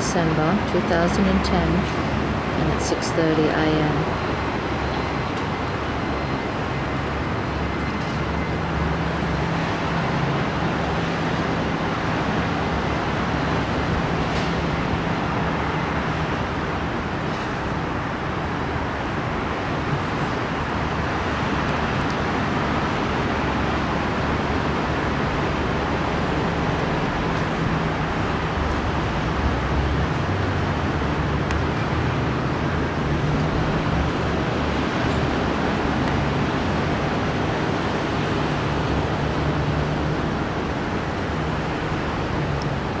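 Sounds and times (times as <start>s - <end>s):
low steady hum: 0.0s - 11.8s
city traffic: 0.0s - 43.0s
surf roar: 0.0s - 43.0s.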